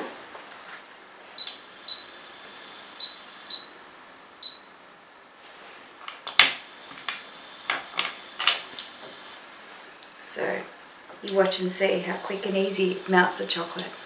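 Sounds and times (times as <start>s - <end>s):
induction cooktop whine: 0.0s - 14.0s
cooktop control beeps: 1.4s - 3.8s, 4.4s - 4.8s.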